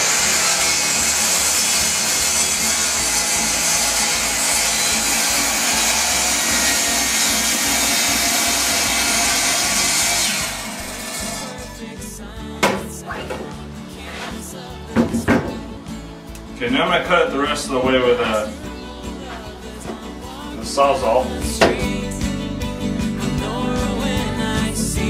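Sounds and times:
miter saw cutting into log: 0.0s - 11.7s.

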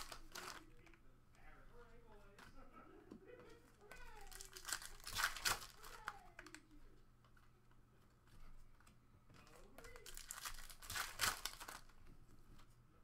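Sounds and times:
foil wrapper crinkling and tearing: 0.0s - 0.8s, 4.1s - 6.6s, 9.8s - 11.9s.

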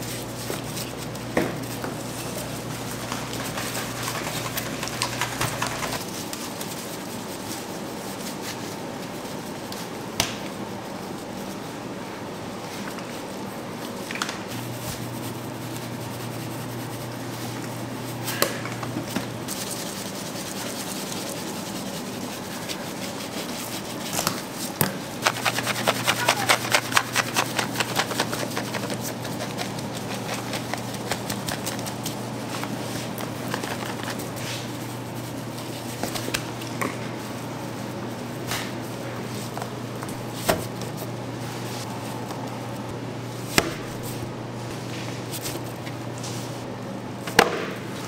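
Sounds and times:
gritty rubbing of seasoning: 0.0s - 9.5s, 19.4s - 36.3s.

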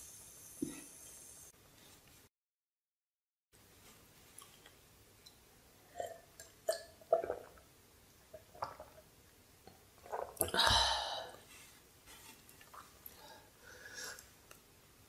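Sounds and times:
person gulping a drink: 5.9s - 7.7s, 8.3s - 9.0s, 9.7s - 11.4s
breathy release from the throat: 10.4s - 11.4s.

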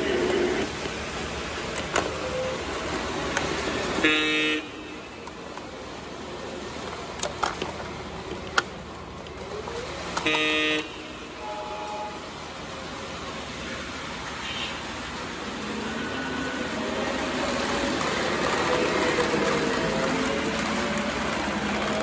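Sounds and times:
model train rolling on track: 0.0s - 22.0s
model train horn blasts: 4.0s - 5.0s, 10.2s - 12.3s.

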